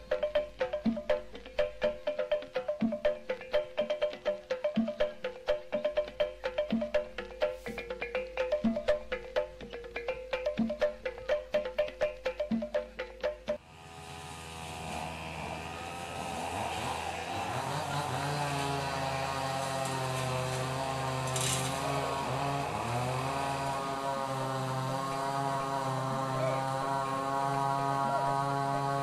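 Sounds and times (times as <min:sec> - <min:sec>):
engine running: 0:13.6 - 0:29.0.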